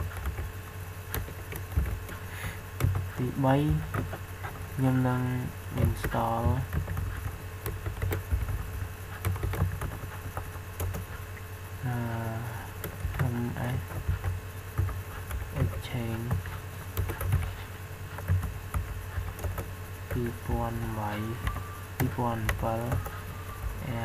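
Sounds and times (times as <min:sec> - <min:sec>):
man's voice: 0:03.2 - 0:03.9, 0:20.2 - 0:23.0, 0:23.8 - 0:24.0.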